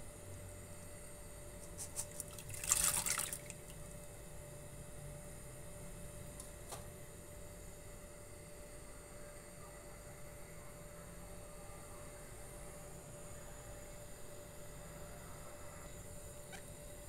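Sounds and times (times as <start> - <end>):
steady low hum: 0.0 - 17.0
lentils splashing into water: 2.2 - 3.8.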